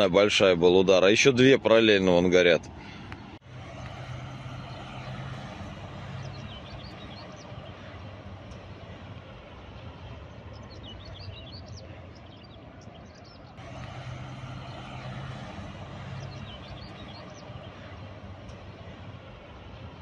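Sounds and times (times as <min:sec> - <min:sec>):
steady low rumble: 0:03.3 - 0:20.0
small birds chirping: 0:04.4 - 0:19.8.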